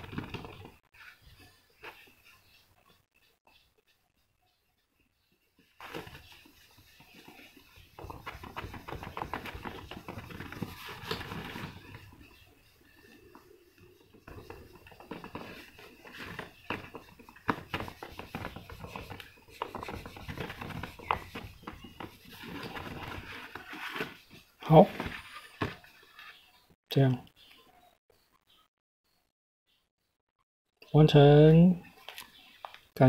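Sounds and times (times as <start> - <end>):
cloth rubbing on plastic: 5.8 - 12.4, 14.0 - 25.9.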